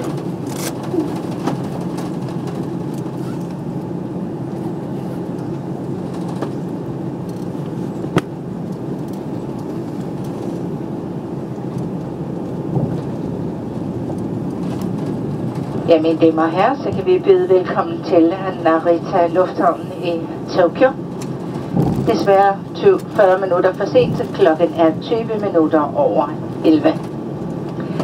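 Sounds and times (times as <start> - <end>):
aircraft cabin engine drone: 0.0 - 28.0.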